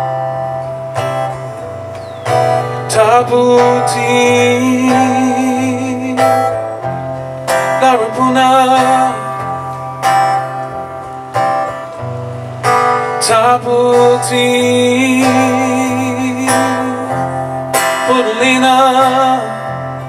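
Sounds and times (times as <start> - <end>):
acoustic guitar strummed chords: 0.0 - 20.0
man singing: 2.6 - 10.4, 12.9 - 20.0.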